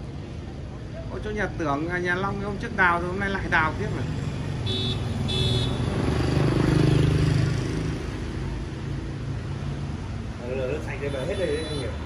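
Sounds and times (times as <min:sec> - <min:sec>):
vehicle horn beeps: 0:04.7 - 0:05.8, 0:11.1 - 0:12.0
vehicle engine passing by: 0:05.7 - 0:09.7.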